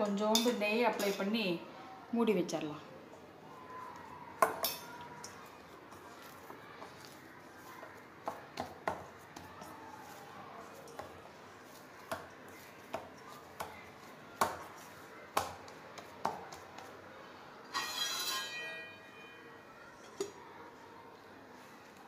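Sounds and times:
dough kneaded in metal bowl: 3.5s - 17.2s
metal lid ringing: 17.7s - 19.3s.

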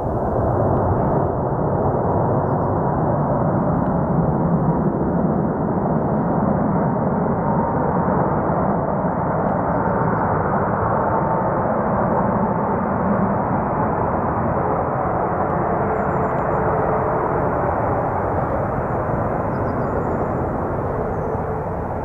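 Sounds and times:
jet engines roaring: 0.0s - 6.1s, 11.9s - 22.0s
faint steady whine: 14.9s - 22.0s.

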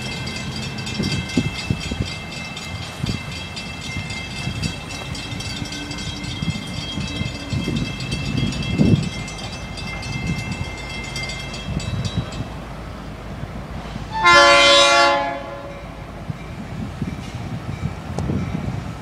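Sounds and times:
locomotive air horn blast: 14.0s - 15.8s.

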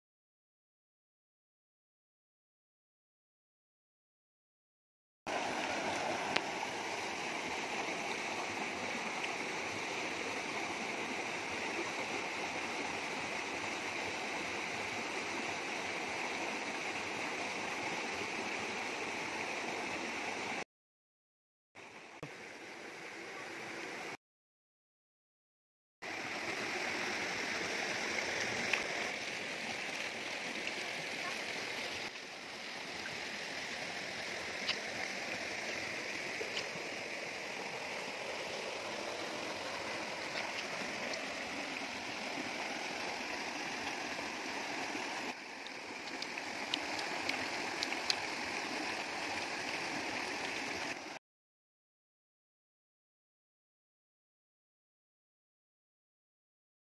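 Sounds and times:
stream rushing over boulders: 5.3s - 20.6s, 21.8s - 24.2s, 26.0s - 51.2s.

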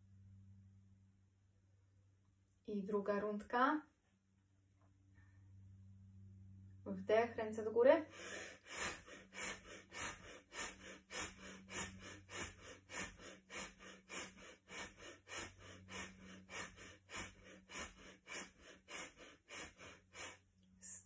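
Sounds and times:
rapid breathing through nose: 8.1s - 20.5s.

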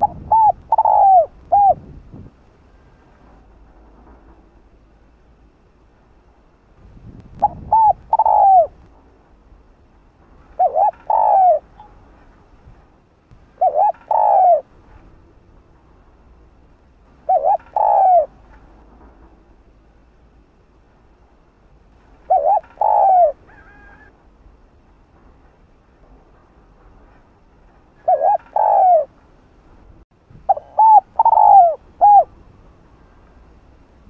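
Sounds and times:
dove cooing: 0.0s - 1.9s, 7.4s - 8.8s, 10.5s - 11.9s, 13.6s - 14.7s, 17.2s - 18.4s, 22.3s - 24.2s, 28.0s - 29.2s, 30.5s - 32.3s.

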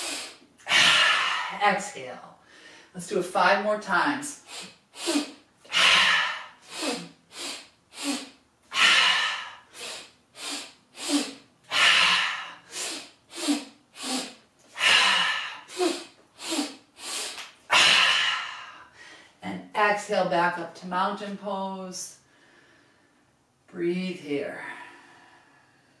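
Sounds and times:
woman exhaling through mouth: 0.0s - 1.6s, 4.4s - 19.2s
woman sniffing through nose: 0.0s - 1.6s, 4.4s - 18.8s.

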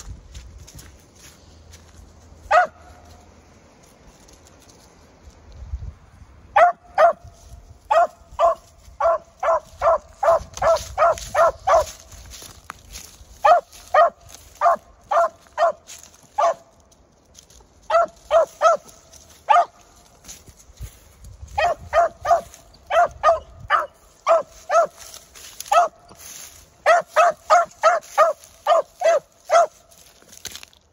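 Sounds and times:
dog barking sharply: 2.5s - 3.0s, 6.6s - 7.2s, 7.9s - 12.0s, 13.4s - 15.8s, 16.4s - 16.7s, 17.9s - 18.9s, 19.5s - 19.8s, 21.6s - 25.0s, 25.7s - 26.0s, 26.8s - 29.7s.

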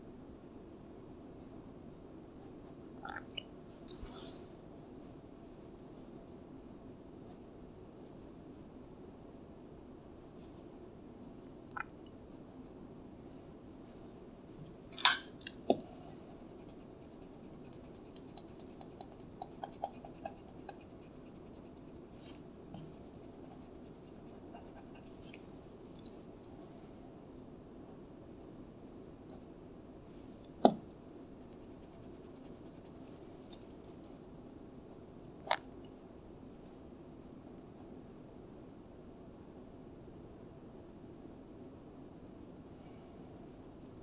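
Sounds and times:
pencil lead scratching on paper: 16.2s - 25.4s.

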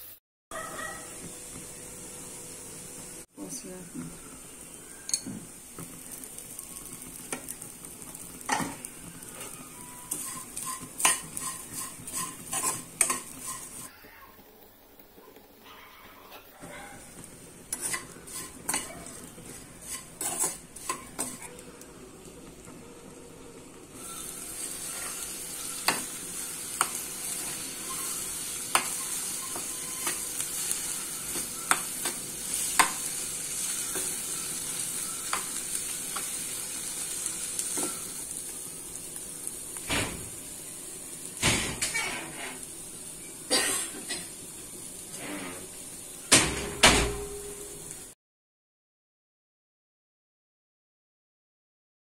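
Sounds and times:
oil sizzling: 0.0s - 46.4s
metal spatula scraping a pan: 9.4s - 13.9s, 17.7s - 21.5s, 24.0s - 36.4s, 41.8s - 42.7s.

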